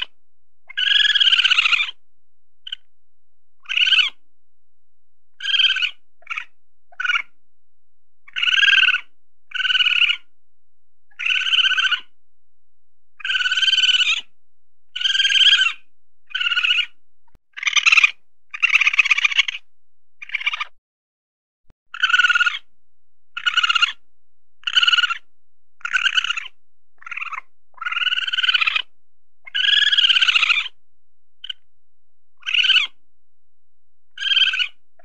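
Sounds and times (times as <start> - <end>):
weasel high-pitched calls: 0.0 - 2.0, 2.6 - 2.9, 3.6 - 4.2, 5.4 - 7.4, 8.2 - 10.3, 11.1 - 12.2, 13.2 - 14.3, 15.0 - 20.8, 21.9 - 22.7, 23.4 - 24.0, 24.6 - 30.8, 31.4 - 31.7, 32.4 - 33.0, 34.1 - 34.8.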